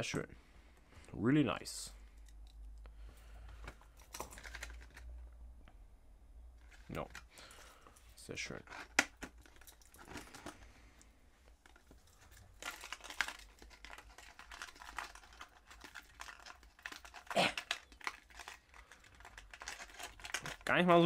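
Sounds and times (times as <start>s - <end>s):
packaging crinkling and rustling: 4.0s - 5.1s, 8.5s - 10.7s, 11.5s - 21.0s.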